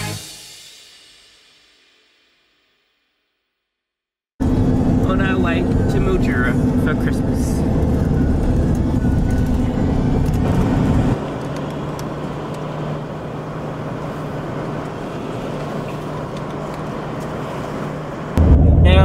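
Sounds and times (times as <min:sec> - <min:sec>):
engine and road rumble: 0:04.4 - 0:19.0
road noise with steady hum: 0:04.4 - 0:19.0.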